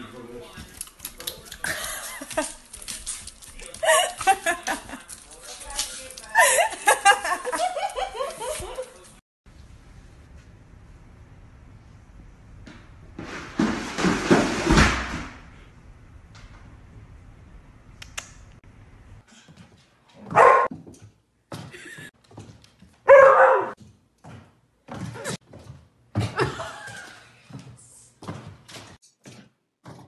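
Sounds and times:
plastic basket clattering down stairs: 0:13.2 - 0:15.4
dog barking: 0:20.2 - 0:20.7, 0:23.1 - 0:23.8.

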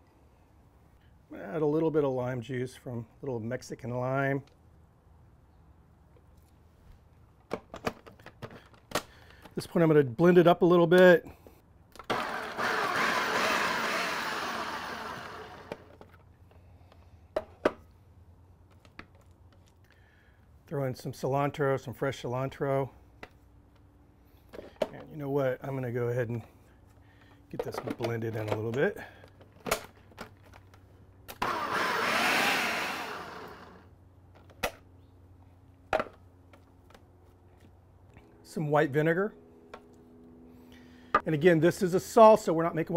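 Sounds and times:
food processor whirring: 0:12.0 - 0:15.9, 0:31.3 - 0:33.8.

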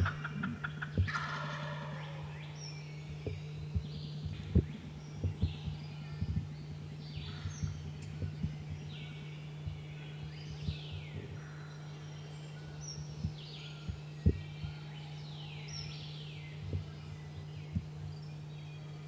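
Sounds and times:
soft low thumps: 0:00.0 - 0:01.4, 0:02.6 - 0:11.5, 0:12.8 - 0:14.8, 0:16.5 - 0:18.6
songbirds singing: 0:00.0 - 0:19.0
steady low hum: 0:00.0 - 0:19.0.

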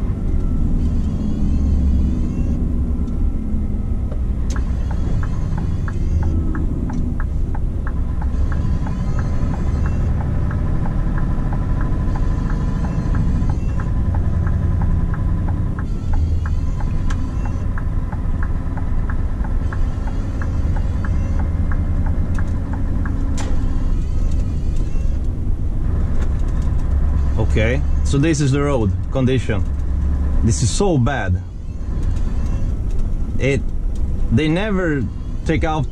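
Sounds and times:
diesel engine rumble: 0:00.0 - 0:35.9
regular light ticking: 0:04.1 - 0:25.4.

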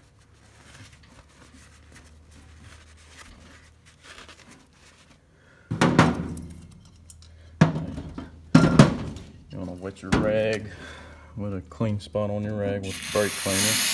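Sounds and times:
faint rubbing and handling: 0:00.0 - 0:05.4.

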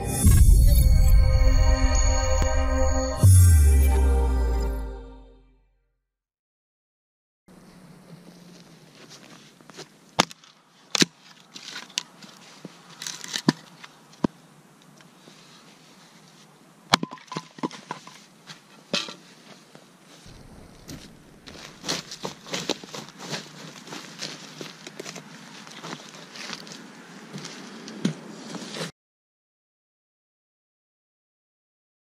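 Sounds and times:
axe splitting firewood: 0:10.2 - 0:12.2, 0:16.9 - 0:18.0.

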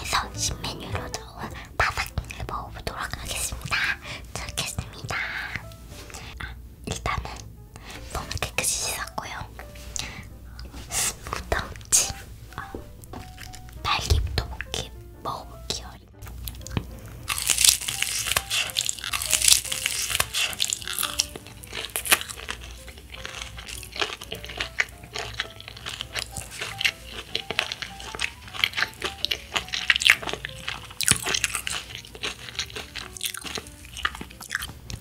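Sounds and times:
crispy chicken wing crunching: 0:16.3 - 0:35.0.

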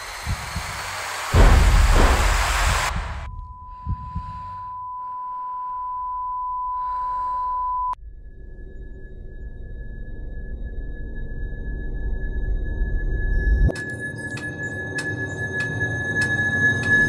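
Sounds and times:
faint higher steady tone: 0:03.3 - 0:08.0
high ringing tone: 0:03.3 - 0:08.0
muffled breathy sounds: 0:03.6 - 0:05.7.

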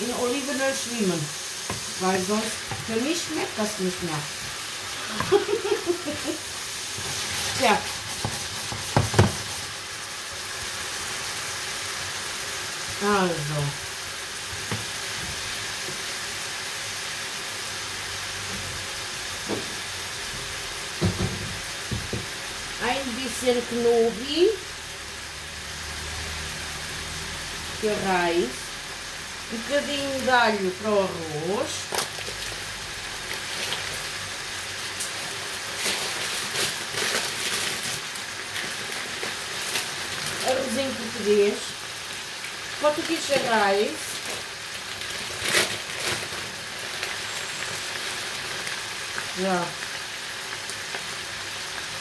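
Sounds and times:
cooking hiss on stove: 0:00.0 - 0:52.0
garlic sizzling in hot oil: 0:00.0 - 0:52.0.

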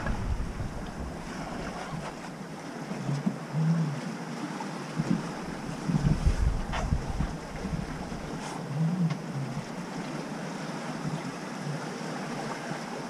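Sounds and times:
low rumble: 0:00.0 - 0:02.4, 0:05.2 - 0:08.5
wind and waves rushing: 0:00.0 - 0:13.0.

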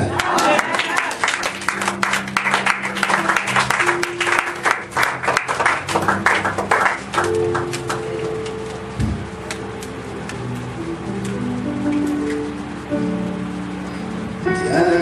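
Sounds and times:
crowd clapping: 0:00.0 - 0:10.4
held instrumental chords: 0:00.0 - 0:15.0.

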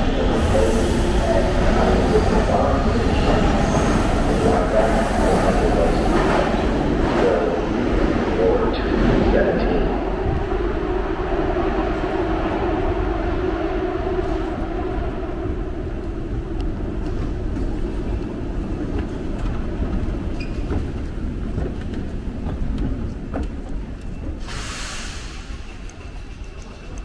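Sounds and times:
subway train rumbling: 0:00.0 - 0:27.0
air hiss burst: 0:24.4 - 0:25.5.

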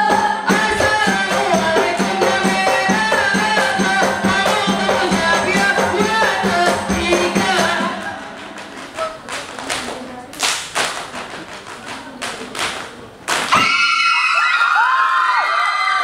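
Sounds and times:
group singing over rattling music: 0:00.0 - 0:09.6
unison hand claps and body slaps: 0:08.6 - 0:13.7.

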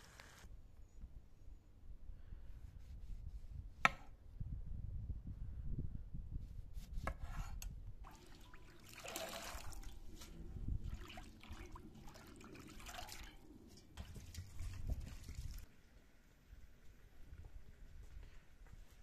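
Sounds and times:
water splashing and dripping: 0:08.0 - 0:15.7.

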